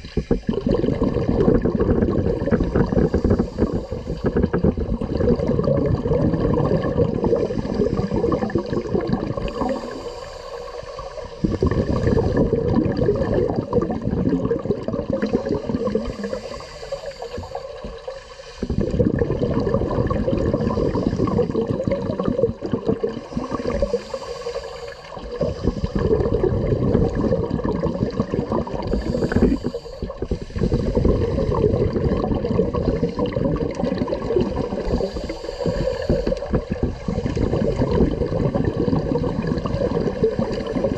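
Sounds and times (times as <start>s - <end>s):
regulator inhalation hiss: 2.4s - 4.3s, 9.4s - 12.3s, 15.6s - 18.9s, 23.2s - 26.1s, 28.8s - 31.7s, 34.8s - 37.6s.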